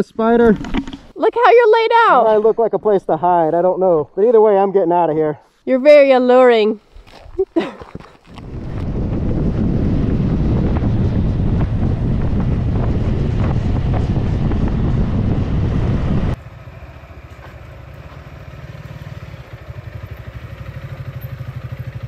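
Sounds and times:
wind rush over microphone: 8.3 - 16.4
dirt bike engine at low revs: 8.4 - 22.0
motorcycle engine: 8.6 - 22.0.

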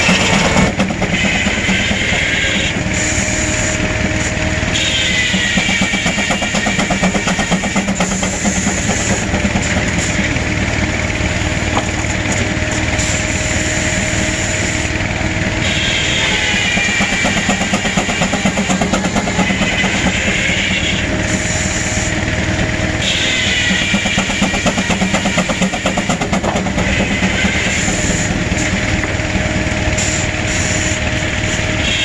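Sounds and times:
circular saw whine: 0.0 - 32.0
steam engine exhaust beat: 0.0 - 32.0.

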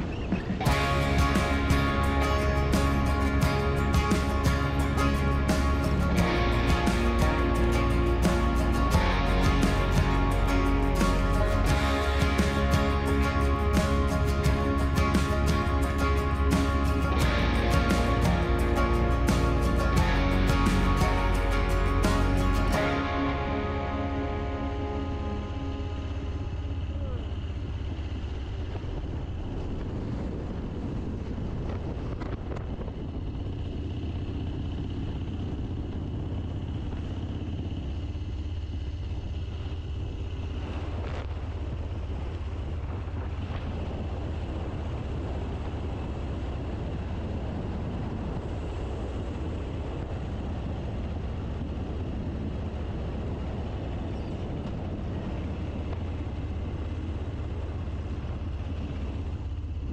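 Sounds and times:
motorcycle engine running: 0.0 - 59.9
wind rushing over microphone: 27.6 - 37.8, 39.3 - 59.9.

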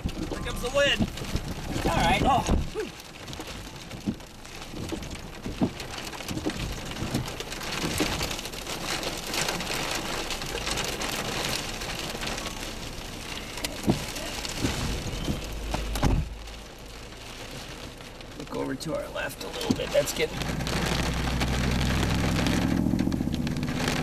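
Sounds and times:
rain pattering on vehicle roof: 0.0 - 24.0
dull knocks: 4.8 - 8.2.

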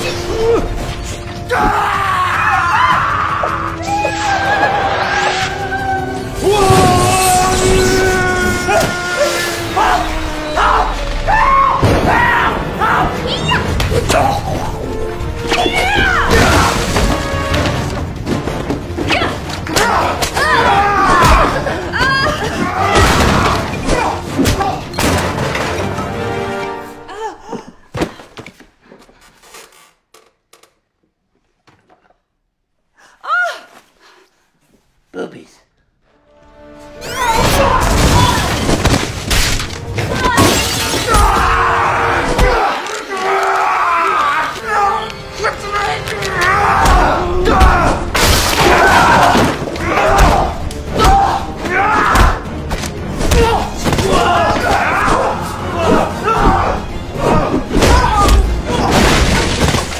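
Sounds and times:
people grunting: 0.0 - 17.5, 19.0 - 25.0, 27.0 - 28.4, 37.0 - 39.0, 40.0 - 59.9
people shouting: 1.4 - 17.2, 19.1 - 25.0, 37.0 - 38.7, 40.0 - 59.2.

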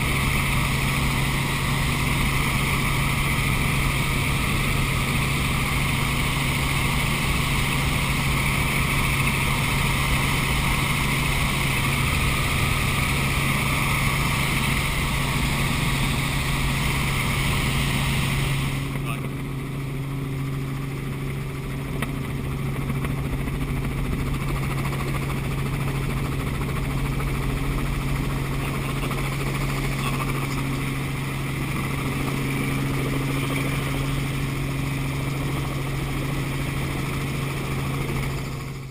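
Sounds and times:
helicopter engine and rotor: 0.0 - 38.9.

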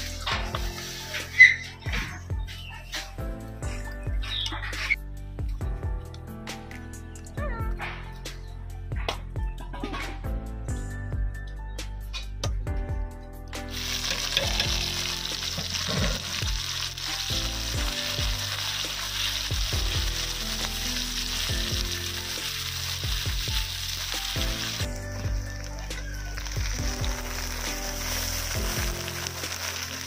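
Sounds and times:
background music: 0.0 - 30.0
spatula turning food in wok: 13.7 - 24.9
onions sizzling in hot oil: 13.7 - 30.0.

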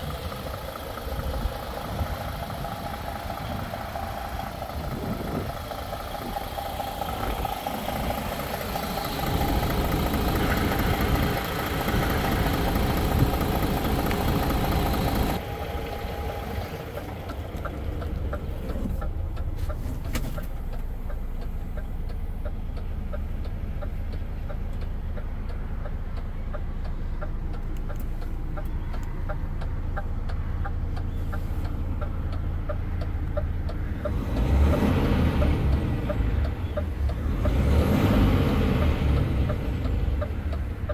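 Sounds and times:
diesel engine idling: 0.0 - 40.9
light regular ticking: 16.9 - 34.5, 35.4 - 37.7, 39.1 - 40.9.

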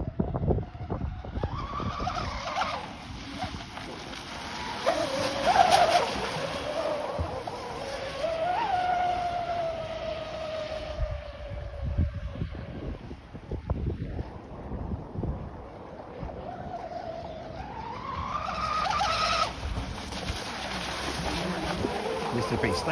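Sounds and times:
model boat motor whining: 0.0 - 22.9.

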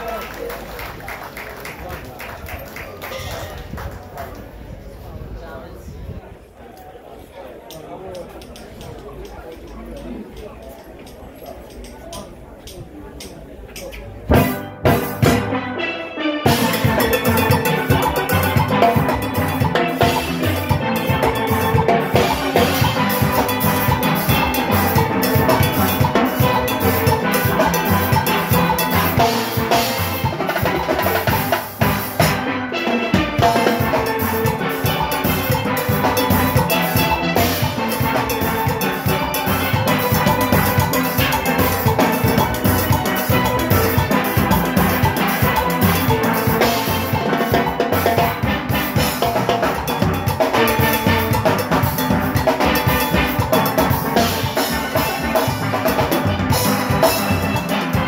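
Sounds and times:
metal percussion: 8.2 - 15.9, 16.5 - 58.0
drum kit: 14.3 - 15.8, 16.5 - 58.0
steelpans playing: 14.3 - 58.0.

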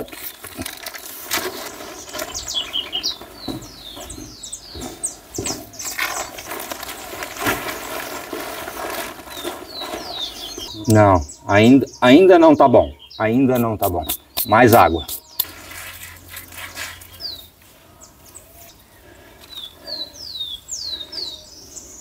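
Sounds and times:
plastic tarp rustling: 0.0 - 4.1, 5.7 - 10.7
birds chirping: 0.0 - 22.0.

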